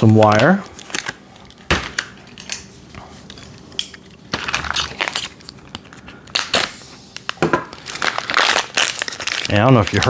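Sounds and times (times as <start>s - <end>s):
foil pouch crumpling and tearing: 4.3s - 10.0s.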